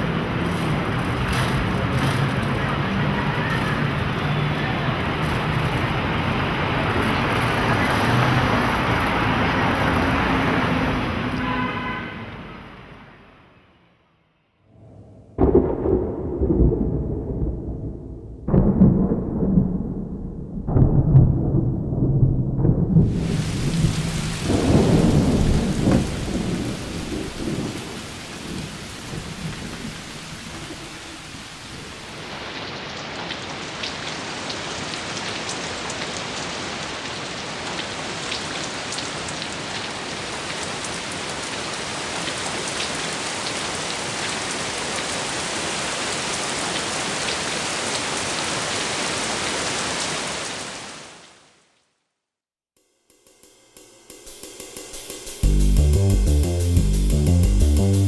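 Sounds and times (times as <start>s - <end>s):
raindrops ticking on a surface: 0.0s - 10.3s, 23.0s - 51.4s
heavy rain: 0.0s - 13.3s, 14.8s - 51.8s
thunder rumbling: 14.7s - 32.0s.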